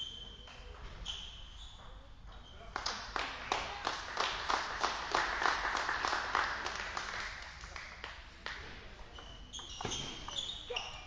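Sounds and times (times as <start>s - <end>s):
people clapping: 2.6s - 8.8s.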